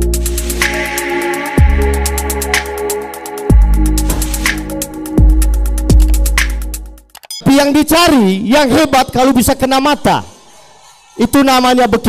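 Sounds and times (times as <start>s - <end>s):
rapid ticking hi-hats: 0.0s - 7.2s
synth chords: 0.0s - 7.2s.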